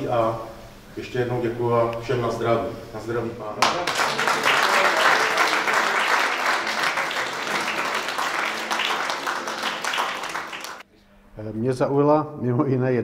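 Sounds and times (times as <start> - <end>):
audience applauding: 3.6 - 10.8
voices: 3.6 - 10.8.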